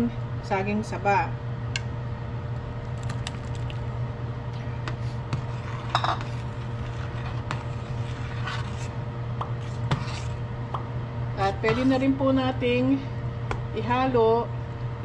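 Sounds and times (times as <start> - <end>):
food scraped into pot: 5.0 - 10.6
metal spoon scraping pot: 5.4 - 9.0, 9.6 - 10.4.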